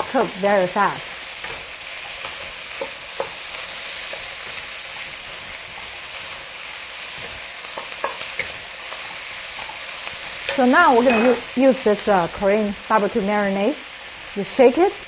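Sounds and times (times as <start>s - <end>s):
food sizzling in a wok: 0.0s - 15.0s
spatula scraping a wok: 1.1s - 11.5s.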